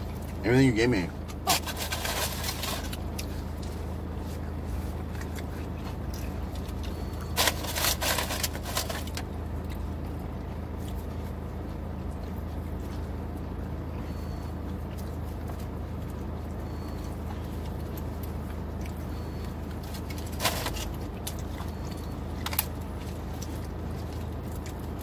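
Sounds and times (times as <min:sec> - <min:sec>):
car idling hum: 0:00.0 - 0:25.0
wrapper rustling and tearing: 0:01.5 - 0:03.0, 0:07.4 - 0:09.1.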